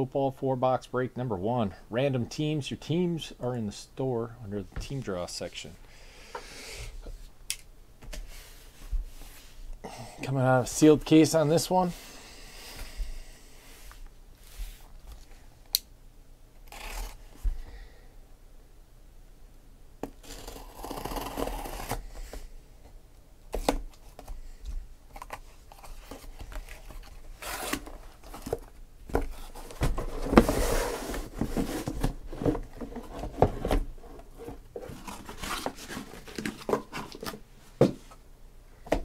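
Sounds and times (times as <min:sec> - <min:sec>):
cardboard rubbing and knocking: 0:29.2 - 0:38.0.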